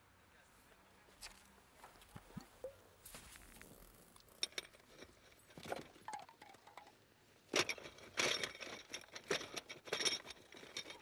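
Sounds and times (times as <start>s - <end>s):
small clicks and clinks: 4.2s - 11.0s.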